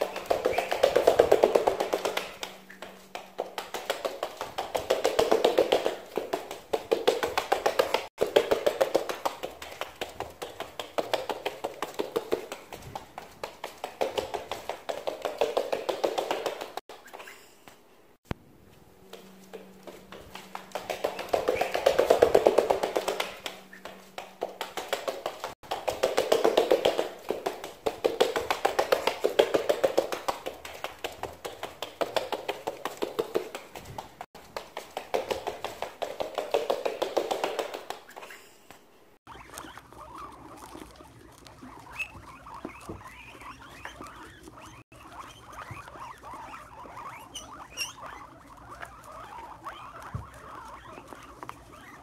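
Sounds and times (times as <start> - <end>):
guinea pigs feeding: 0.0 - 17.6, 19.0 - 33.5, 39.2 - 52.0
duck feet clicking on floor: 0.0 - 18.4, 19.0 - 52.0
guinea pig squeaks: 0.2 - 2.8, 21.0 - 23.9, 39.3 - 52.0.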